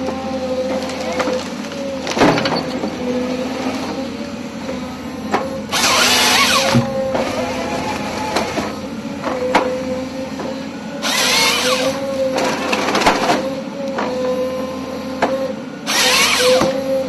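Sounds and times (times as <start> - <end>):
excavator engine humming: 0.0 - 17.0
chain saw cutting trunk: 5.7 - 8.8, 11.0 - 13.4, 15.9 - 16.8.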